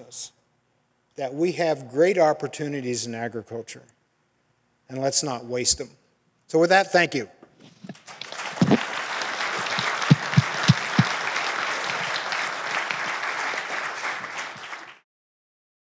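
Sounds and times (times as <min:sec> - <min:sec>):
audience clapping: 0:07.8 - 0:15.0.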